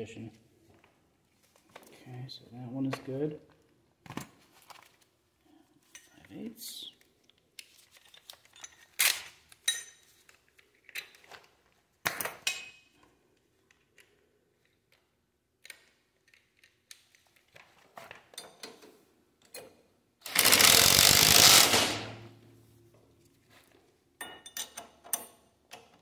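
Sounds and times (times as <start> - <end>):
metal tools clinking: 8.1 - 10.3, 24.2 - 25.5.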